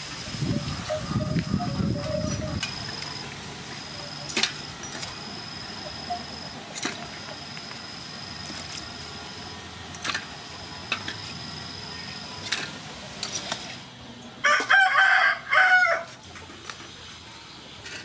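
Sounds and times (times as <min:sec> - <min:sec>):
rooster crowing: 0:14.4 - 0:16.2.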